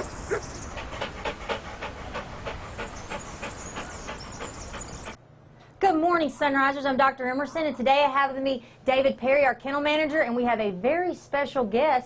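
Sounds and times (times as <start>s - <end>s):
dog panting: 0.0s - 5.2s.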